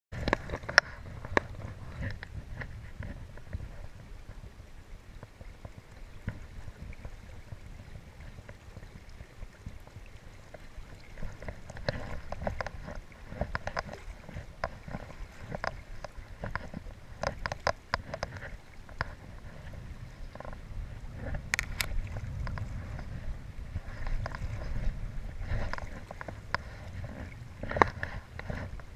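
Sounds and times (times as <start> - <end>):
river water rumble: 0.1 - 28.9
wind on microphone: 0.1 - 28.9
sharp clicks and knocks: 11.4 - 19.2, 21.2 - 22.7.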